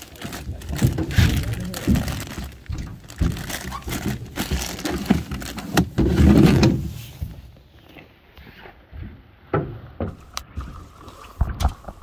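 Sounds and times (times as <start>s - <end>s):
plastic bags crinkling: 0.0s - 6.5s.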